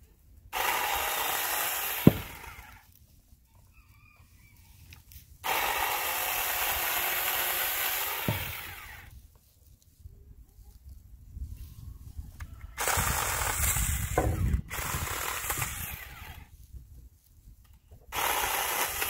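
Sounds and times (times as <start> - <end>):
mini chainsaw cutting branches: 0.5 - 2.8, 5.4 - 9.1, 12.8 - 16.5, 18.1 - 19.0.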